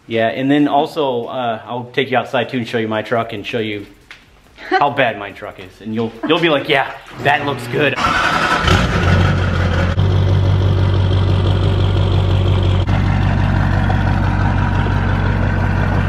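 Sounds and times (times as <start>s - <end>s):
diesel engine idling: 8.0s - 16.0s.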